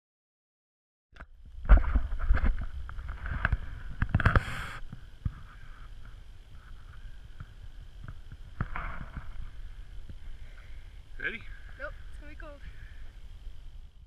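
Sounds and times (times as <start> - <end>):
wind rumble: 1.3 - 14.0
camera handling noise: 1.7 - 5.5
short hiss: 3.3 - 7.1.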